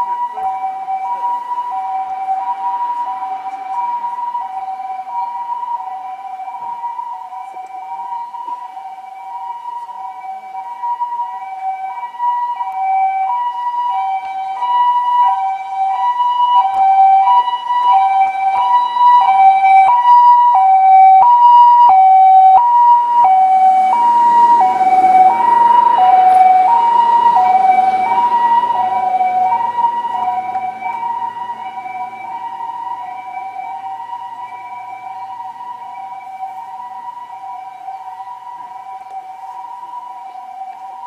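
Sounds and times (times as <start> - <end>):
engine and road noise: 0.0 - 41.0
two-tone ambulance siren: 0.0 - 41.0.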